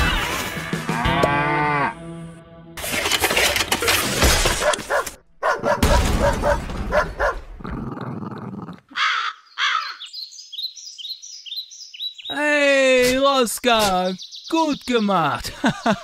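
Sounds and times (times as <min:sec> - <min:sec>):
dog barking: 0:04.6 - 0:07.5
rising bird chirps: 0:08.9 - 0:12.4, 0:14.0 - 0:15.4.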